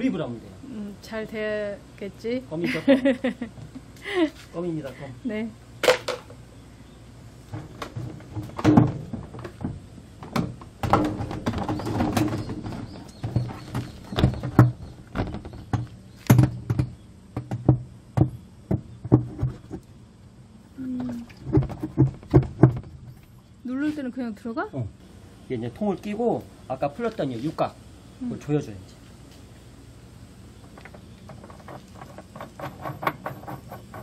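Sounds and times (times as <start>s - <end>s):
plastic tub knocking: 21.4s - 23.0s
rattling scrapes: 30.9s - 34.0s.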